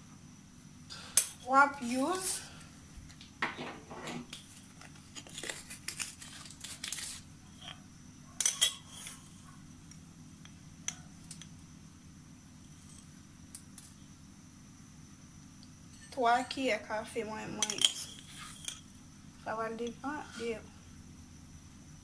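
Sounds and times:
packaging rustling and crinkling: 4.4s - 7.3s.

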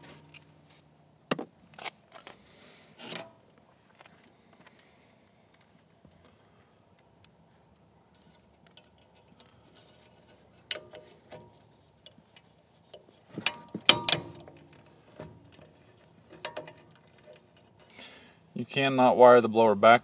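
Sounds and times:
wires and connectors clicking: 7.2s - 18.0s.

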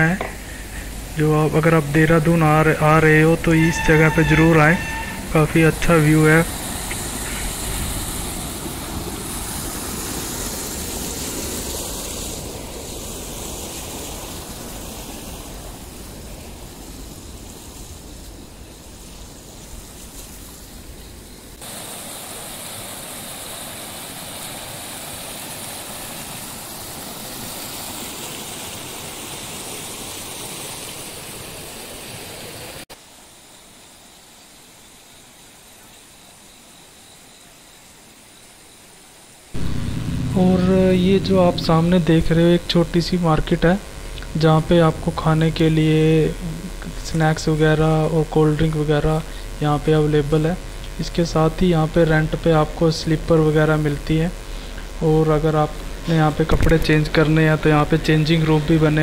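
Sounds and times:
thin hiss of flowing water: 0.0s - 36.4s
stream rushing over weir: 5.1s - 15.8s, 21.6s - 32.8s.

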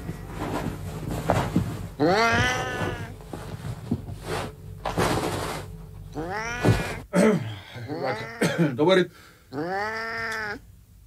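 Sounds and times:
cat meowing: 2.0s - 3.1s, 6.1s - 7.0s, 7.9s - 8.5s, 9.5s - 10.6s.

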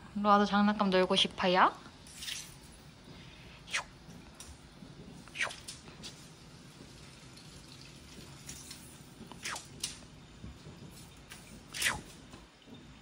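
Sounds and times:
toy wand swishes: 3.7s - 3.9s, 5.3s - 5.8s, 9.4s - 9.8s, 11.7s - 12.2s.

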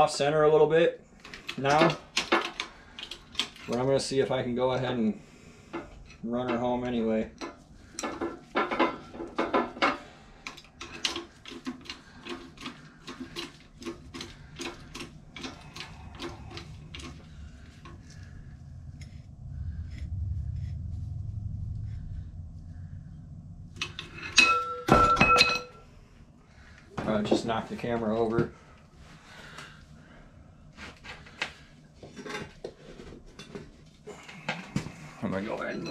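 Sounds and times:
low hum: 2.6s - 35.9s
loud metallic clangs: 23.8s - 25.9s.

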